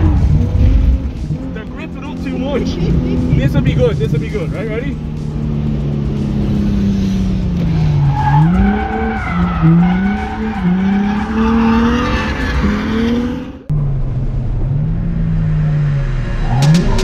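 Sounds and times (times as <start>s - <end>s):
car engine revving: 0.0s - 17.0s.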